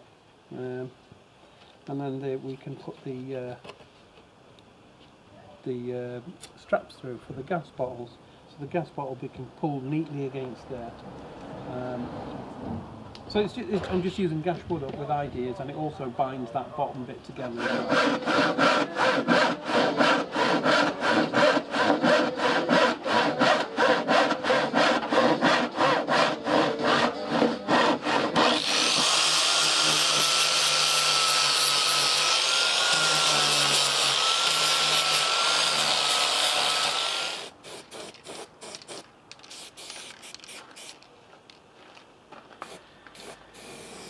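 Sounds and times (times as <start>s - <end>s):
handsaw cutting plywood: 17.4s - 39.0s.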